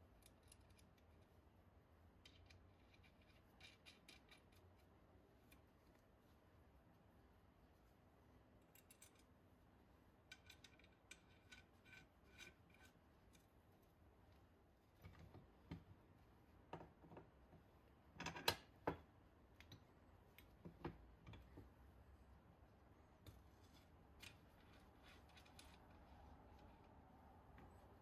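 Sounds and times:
metal parts clicking and knocking: 0.2 - 1.2, 2.2 - 4.6, 8.7 - 9.3, 10.3 - 12.9.

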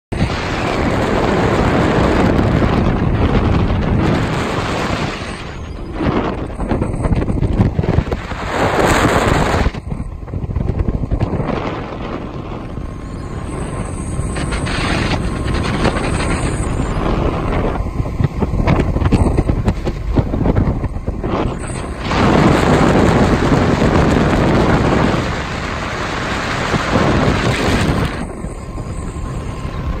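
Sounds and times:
low rumble: 0.1 - 30.0
wind blasting microphone: 0.1 - 30.0.

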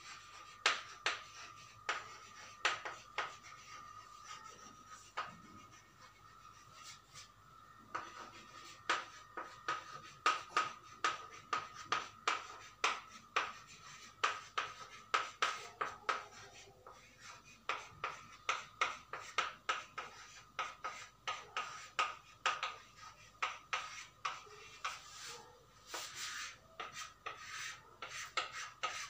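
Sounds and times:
chalk tapping and scratching on chalkboard: 0.0 - 29.0.

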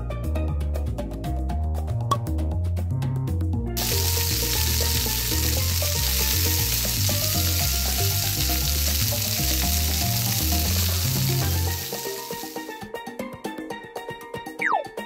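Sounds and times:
frying sizzle: 3.8 - 12.8.

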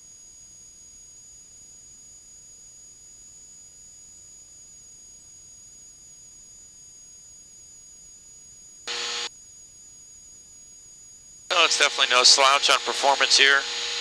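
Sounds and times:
high-pitched whines: 8.9 - 9.3, 11.5 - 14.0
short buzzing beep: 8.9 - 9.3.

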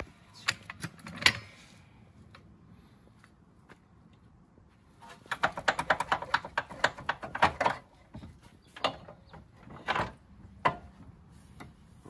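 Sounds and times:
hand tools clicking and clattering: 5.1 - 11.0.

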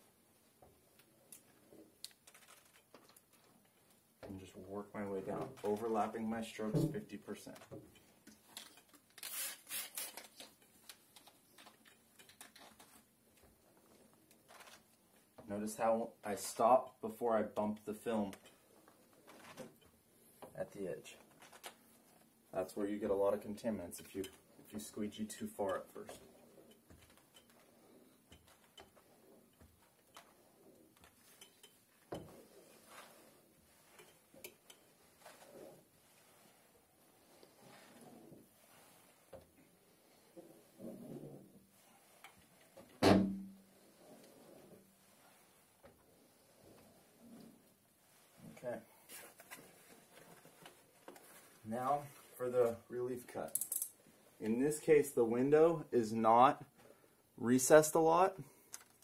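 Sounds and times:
squeegee swishing on wet glass: 25.6 - 42.9, 43.6 - 52.4.

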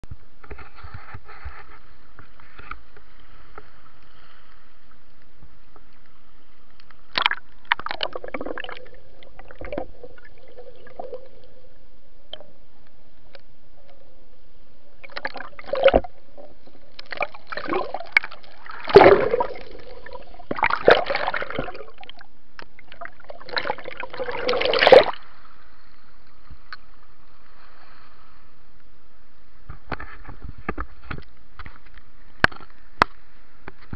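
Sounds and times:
faint steady hum: 0.0 - 33.9
sea water sloshing and splashing: 7.0 - 11.7, 15.0 - 25.6.

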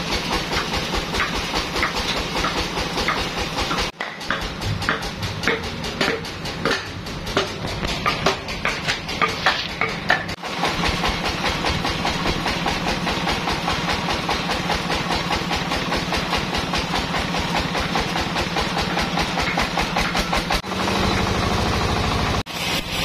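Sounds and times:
sawmill engine chugging: 0.0 - 23.0.

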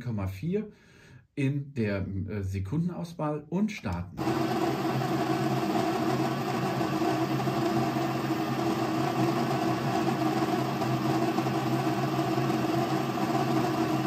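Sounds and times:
coffee grinder running: 4.2 - 14.0.

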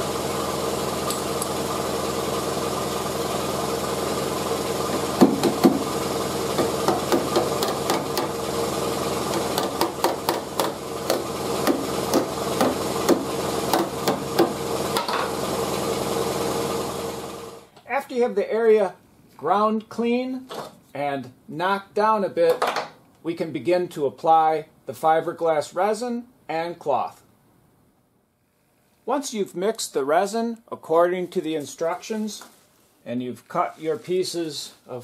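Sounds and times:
steady machine hum: 0.0 - 17.7
hammer tapping steel: 9.4 - 14.6.

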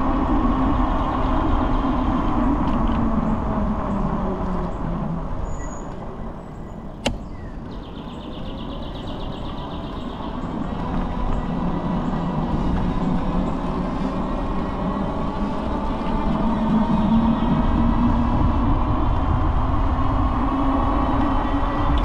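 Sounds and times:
passing vehicles rumble: 0.0 - 22.0
sharp click: 7.0 - 7.4.

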